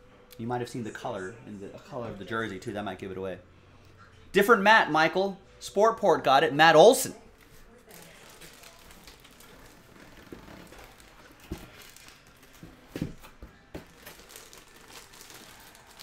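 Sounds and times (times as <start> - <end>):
plastic bag crinkling: 7.8 - 12.7, 13.8 - 16.0.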